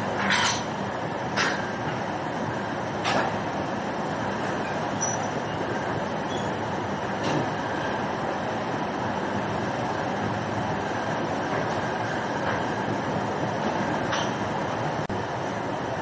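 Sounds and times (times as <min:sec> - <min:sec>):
industrial machine running: 0:00.0 - 0:16.0.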